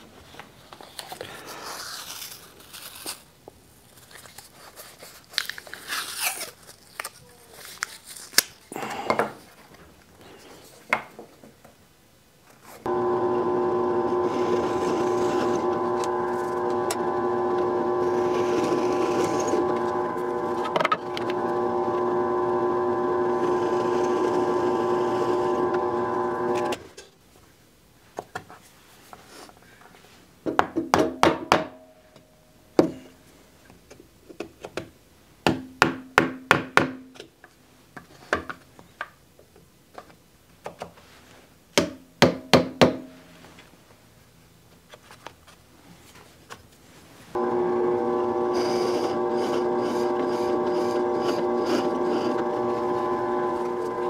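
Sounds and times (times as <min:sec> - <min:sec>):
drill bit cutting wood: 0:12.9 - 0:26.8, 0:47.4 - 0:54.0
drill press motor whining: 0:12.9 - 0:26.8, 0:47.4 - 0:54.0.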